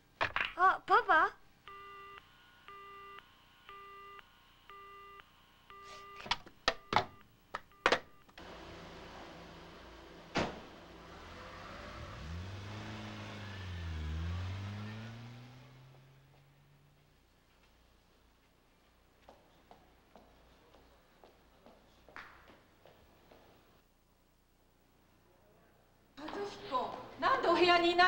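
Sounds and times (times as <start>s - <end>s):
telephone busy tone beeping: 1.7s - 8.3s.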